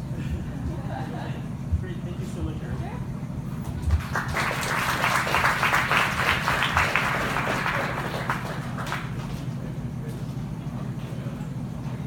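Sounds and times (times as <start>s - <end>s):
low room hum: 0.0s - 12.0s
audience applauding: 3.9s - 9.5s.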